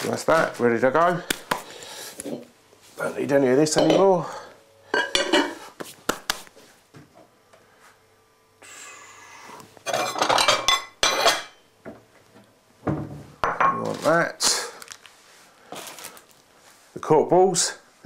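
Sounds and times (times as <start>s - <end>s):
crockery and cutlery clattering: 9.9s - 11.6s.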